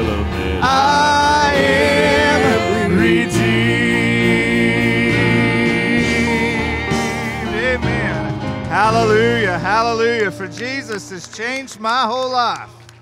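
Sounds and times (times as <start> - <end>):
gospel singers with band: 0.0 - 9.7.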